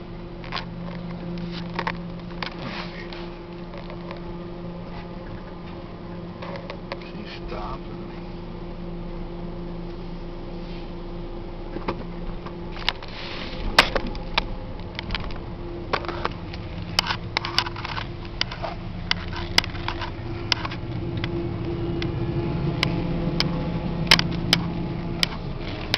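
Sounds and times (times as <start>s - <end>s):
pickup engine hum inside cab: 0.0s - 25.9s
sharp clicks and knocks: 11.7s - 22.1s, 22.8s - 25.9s.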